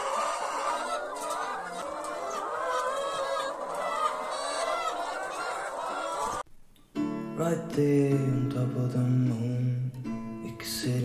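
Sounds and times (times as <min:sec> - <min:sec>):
hens clucking: 0:00.0 - 0:06.4.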